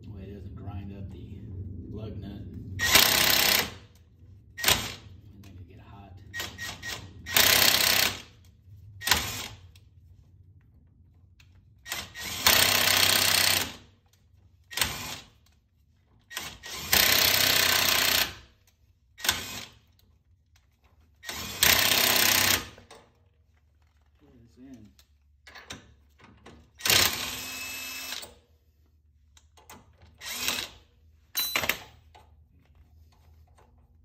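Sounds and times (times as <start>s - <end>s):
impact wrench hammering: 31.4s - 32.0s.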